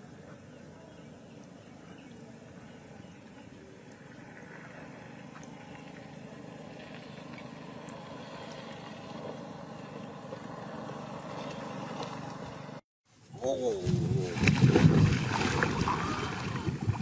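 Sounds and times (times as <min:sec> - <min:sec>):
distant motor humming: 0:00.4 - 0:12.8.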